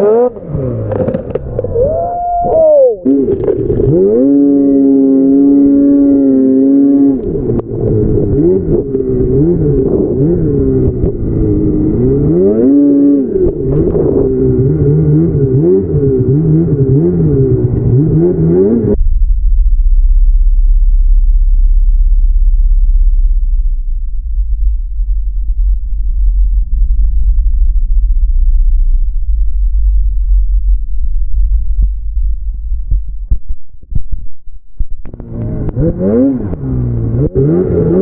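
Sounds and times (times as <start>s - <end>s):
snowmobile engine revving: 0.0s - 19.0s, 35.1s - 38.0s
steady low rumble: 0.0s - 38.0s.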